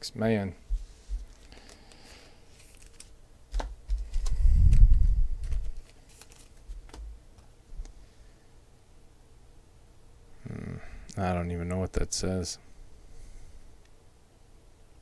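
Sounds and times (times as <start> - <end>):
cards clicking and tapping: 2.7 - 4.4, 5.4 - 7.5.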